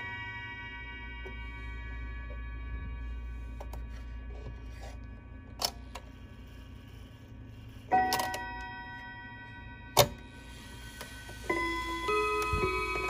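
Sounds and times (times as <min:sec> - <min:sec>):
clock chime rods ringing: 0:00.0 - 0:03.4, 0:07.9 - 0:13.0.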